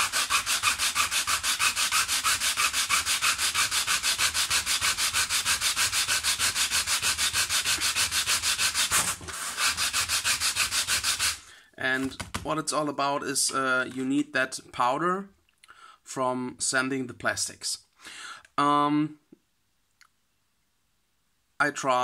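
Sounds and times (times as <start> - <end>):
plastic scrubbing on sandpaper: 0.0 - 12.2.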